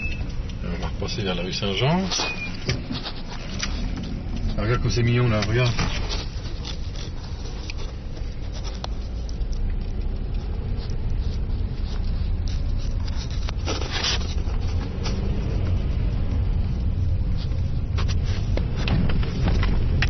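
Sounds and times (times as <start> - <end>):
car engine and road rumble: 0.0 - 20.0.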